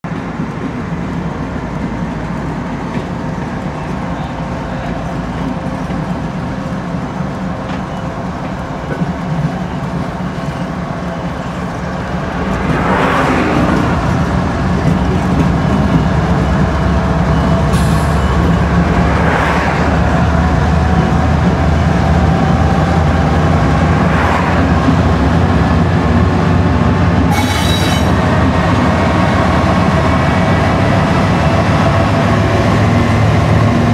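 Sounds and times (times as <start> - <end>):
diesel locomotives rumbling: 0.0 - 33.9
car road noise: 3.8 - 27.4.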